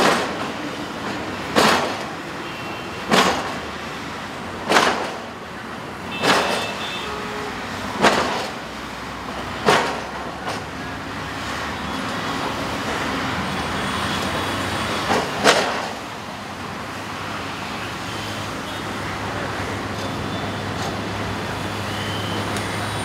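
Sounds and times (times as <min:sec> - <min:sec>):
road traffic passing: 0:00.0 - 0:23.0
sharp knock: 0:01.5 - 0:02.1, 0:03.1 - 0:03.6, 0:04.7 - 0:05.2, 0:06.2 - 0:06.8, 0:08.0 - 0:08.6.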